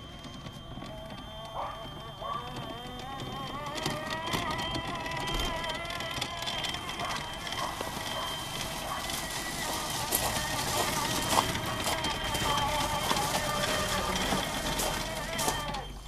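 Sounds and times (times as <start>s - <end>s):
electric motors whining: 0.0s - 16.0s
wheels crunching on gravel: 0.0s - 16.0s.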